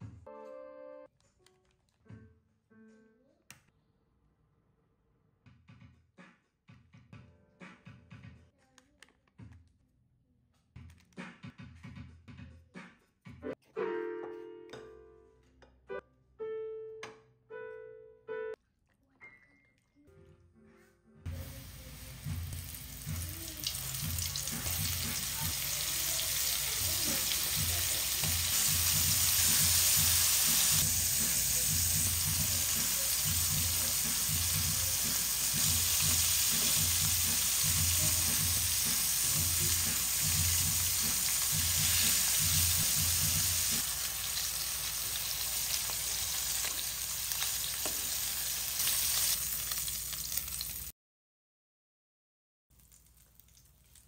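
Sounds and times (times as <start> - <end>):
deep-frying sizzle: 21.3 - 50.9, 52.8 - 54.0.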